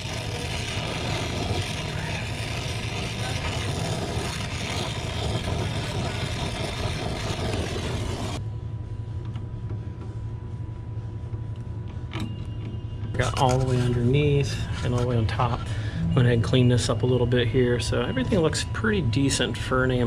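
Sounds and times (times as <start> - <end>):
torch flame hissing: 0.0 - 8.4
steady low hum: 0.0 - 20.0.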